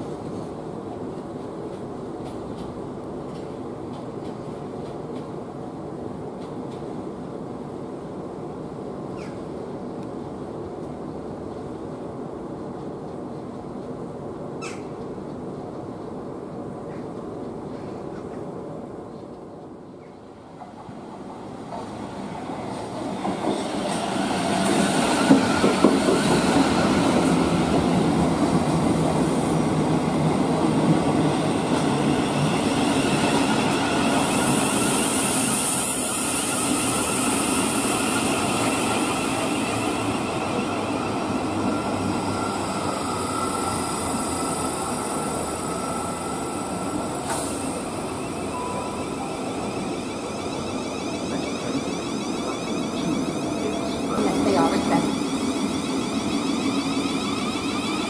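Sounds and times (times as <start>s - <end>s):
train wheels rumbling on rails: 0.0s - 58.0s
high hiss: 32.0s - 58.0s.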